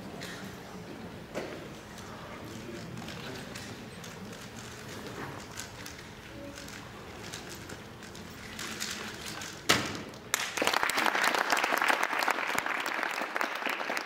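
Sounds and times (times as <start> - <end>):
audience applause: 10.3 - 14.0.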